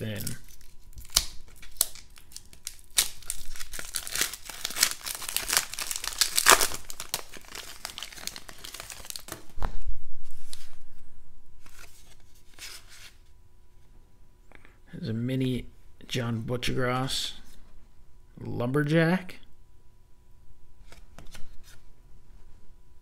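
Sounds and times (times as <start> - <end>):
foil wrapper tearing and crinkling: 0.0 - 9.4.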